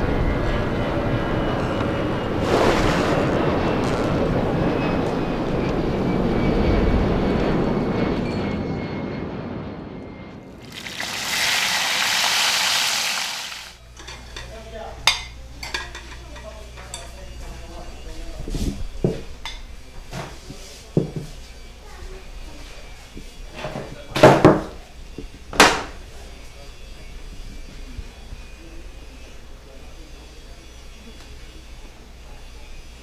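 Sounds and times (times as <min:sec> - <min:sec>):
low rumbling noise: 0:00.0 - 0:10.6
pan sizzling: 0:10.6 - 0:13.8
kitchen utensils clinking: 0:14.0 - 0:17.2.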